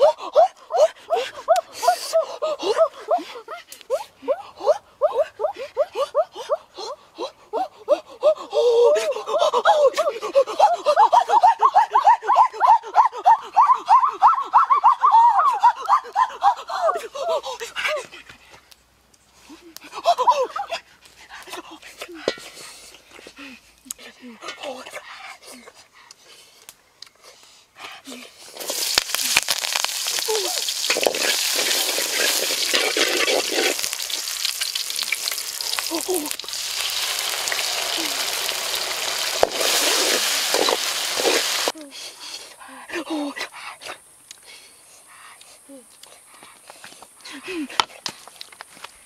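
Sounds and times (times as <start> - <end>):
food sizzling in hot oil: 28.5 - 41.7
ladle scraping a wok: 30.8 - 34.1.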